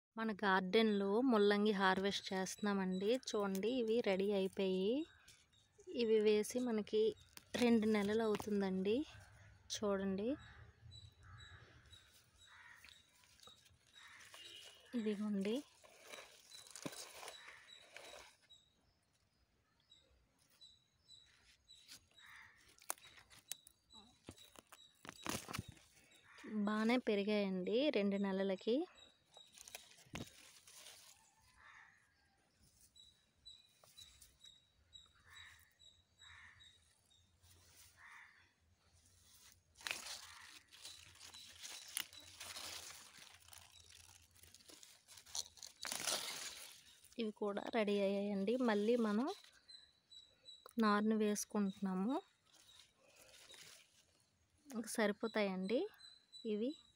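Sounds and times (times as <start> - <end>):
dry soil crunching: 2.1 - 9.5, 11.2 - 18.8, 21.2 - 26.9, 29.3 - 31.9, 35.2 - 49.9, 51.3 - 54.6
leaves rustling: 12.0 - 18.5, 29.4 - 31.8, 37.4 - 38.4, 39.0 - 49.6, 52.4 - 54.3.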